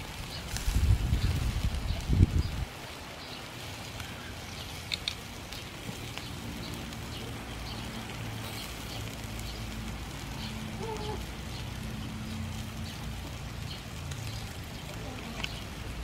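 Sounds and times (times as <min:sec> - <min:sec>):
meat crackling on grill: 0:00.0 - 0:16.0
sharp clicks: 0:04.9 - 0:05.2.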